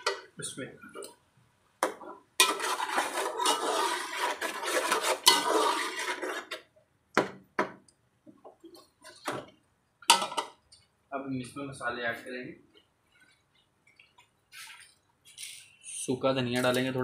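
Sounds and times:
metal spatula scraping pot: 2.0 - 6.7
food frying in oil: 2.4 - 6.7.

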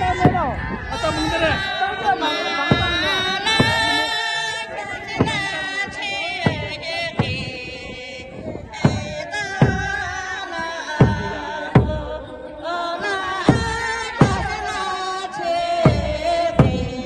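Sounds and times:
barrel drum beaten: 0.0 - 1.6, 2.7 - 4.1, 5.1 - 7.8, 8.8 - 10.1, 11.0 - 12.2, 13.5 - 14.7, 15.8 - 17.0
women singing in unison: 0.0 - 17.0.

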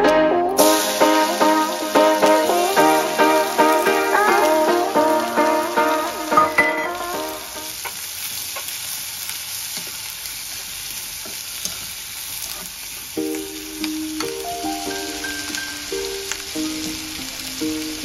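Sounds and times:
plucked-string background music: 0.0 - 7.4
onions sizzling in hot oil: 0.6 - 18.0.

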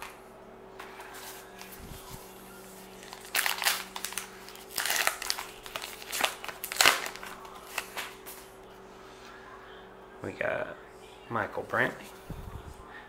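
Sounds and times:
wrapper crinkling and tearing: 2.8 - 8.4.

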